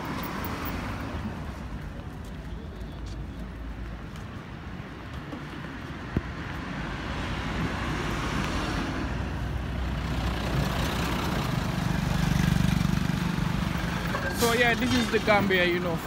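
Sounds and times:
road traffic noise: 0.0 - 16.0.

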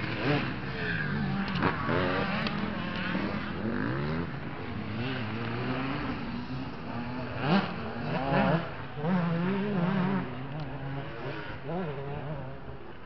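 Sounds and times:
dirt bike engines revving: 0.0 - 13.0.

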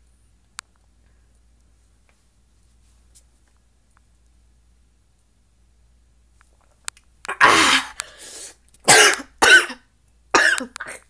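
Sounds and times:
person coughing hard: 7.3 - 8.0, 8.9 - 9.8, 10.4 - 11.0.

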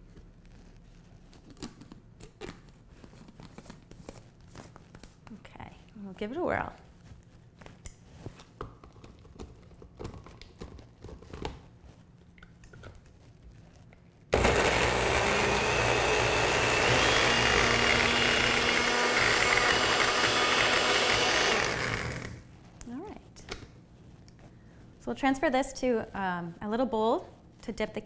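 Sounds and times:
blender motor running: 14.4 - 22.4.

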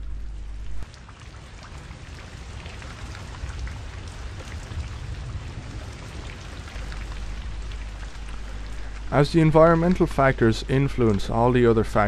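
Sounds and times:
steady rain falling: 0.0 - 12.0.

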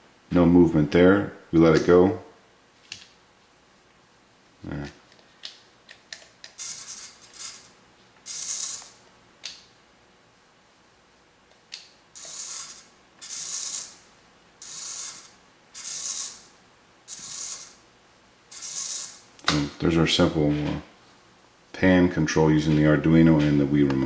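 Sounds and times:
servo whirring: 6.6 - 7.7, 8.3 - 9.0, 12.2 - 14.0, 14.6 - 16.5, 17.1 - 17.8, 18.5 - 19.2.

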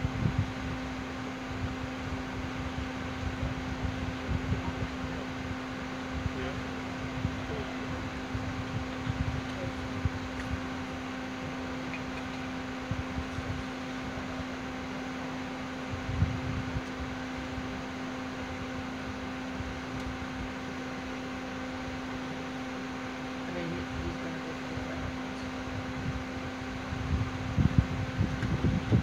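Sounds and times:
mechanical hum with hiss: 0.0 - 29.0.

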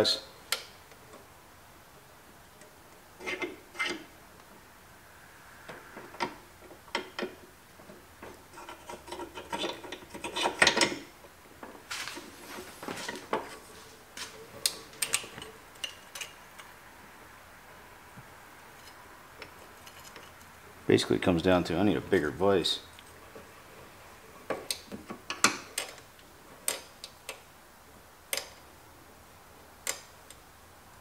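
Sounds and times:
metal rubbing and scraping: 3.2 - 4.1, 8.2 - 11.0
metal clicks and knocks: 6.1 - 11.8, 24.5 - 27.4.

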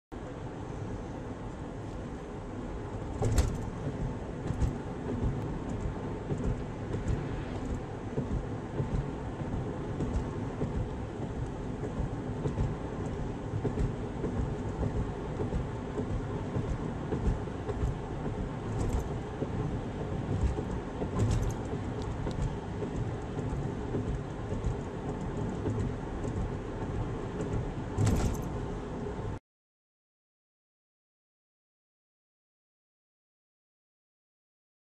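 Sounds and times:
road and tyre noise: 0.1 - 29.4
knocks and thumps from bumps: 3.2 - 28.6.

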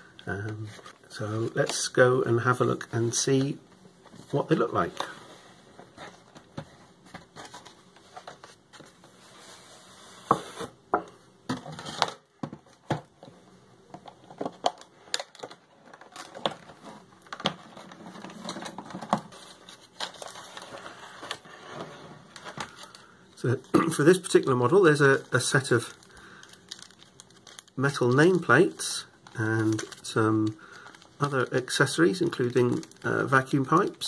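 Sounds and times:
plastic packaging crinkling: 14.0 - 34.0.

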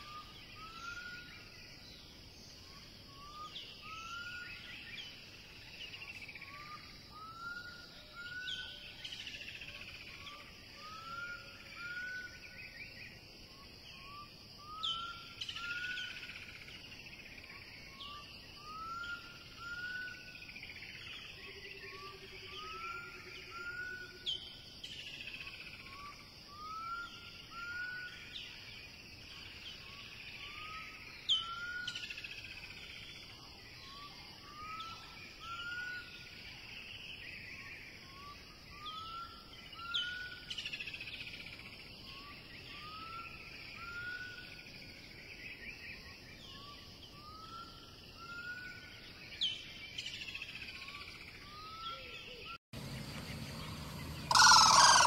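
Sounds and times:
birds chirping: 52.0 - 55.0.

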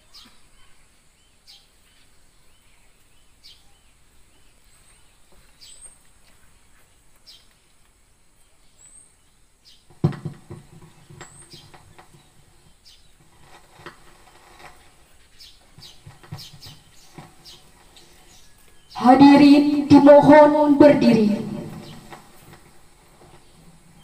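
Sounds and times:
birds chirping: 8.3 - 13.6, 15.1 - 24.0.

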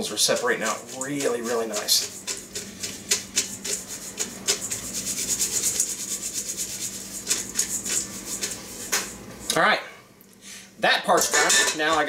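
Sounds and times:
noodles shaken in a metal colander: 0.0 - 9.2.

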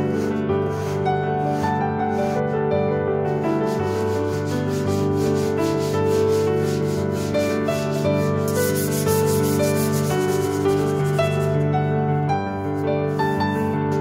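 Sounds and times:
soft piano music: 0.0 - 14.0
sanding disc rubbing on wood: 0.3 - 2.3, 3.7 - 11.6.

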